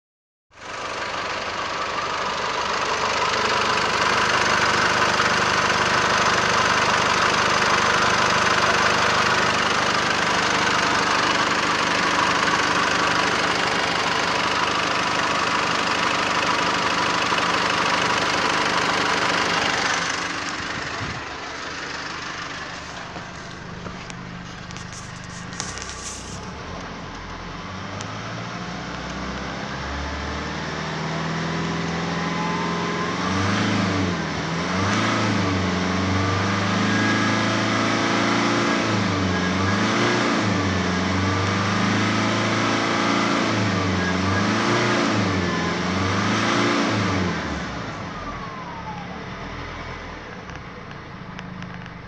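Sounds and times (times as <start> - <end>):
diesel engine idling: 0.6 - 28.0, 47.3 - 52.0.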